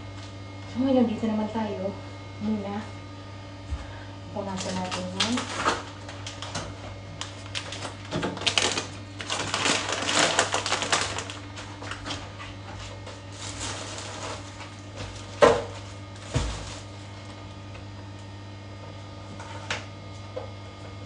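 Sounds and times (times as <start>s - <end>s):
steady low hum: 0.0s - 21.0s
plastic packaging crinkling: 4.5s - 17.4s.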